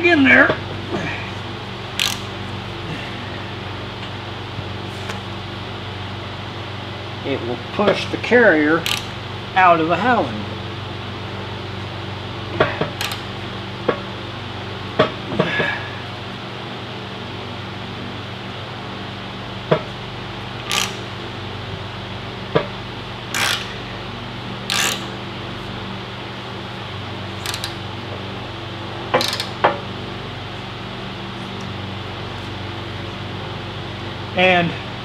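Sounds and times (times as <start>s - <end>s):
steady hum: 0.0s - 35.0s
metal gears clicking: 2.0s - 2.3s, 8.8s - 9.1s, 13.0s - 13.3s, 20.6s - 21.0s, 23.3s - 23.7s, 24.7s - 25.1s, 27.4s - 27.8s, 29.2s - 29.6s.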